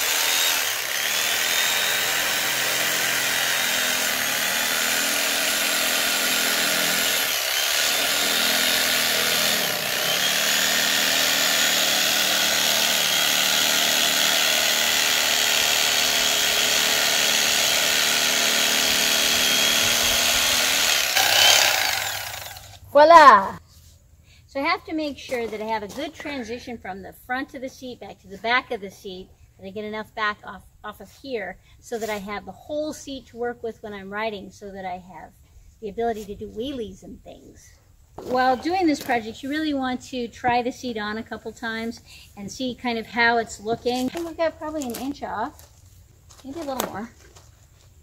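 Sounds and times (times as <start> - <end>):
electric knife sawing foam: 0.0 - 22.8.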